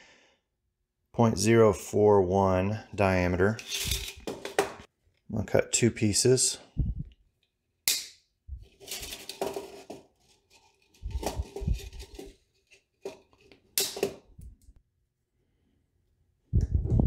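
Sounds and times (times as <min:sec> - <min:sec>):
wire scraping and rattling: 0:03.6 - 0:04.5, 0:08.6 - 0:13.6.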